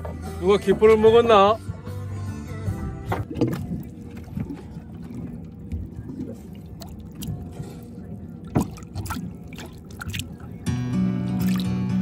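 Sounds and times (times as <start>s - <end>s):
low rumbling boat noise: 0.0s - 12.0s
water moving in a tank: 3.1s - 10.7s, 11.3s - 11.9s.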